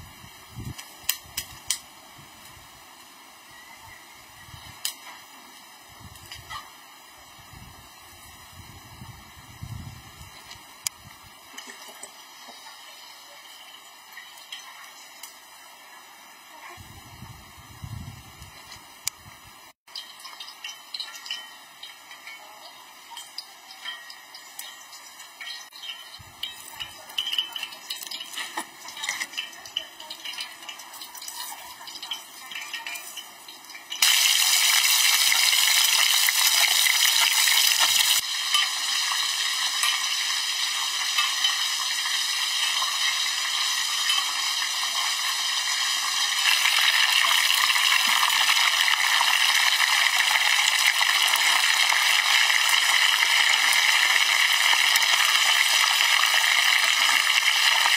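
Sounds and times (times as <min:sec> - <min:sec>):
fish sizzling in hot oil: 0:00.0 - 0:57.9.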